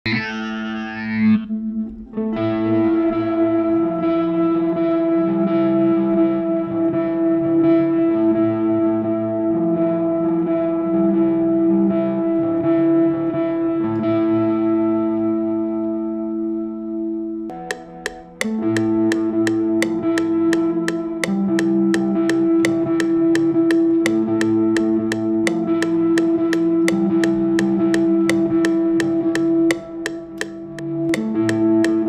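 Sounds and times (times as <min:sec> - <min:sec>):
electric guitar chords: 0:17.5 - 0:32.0.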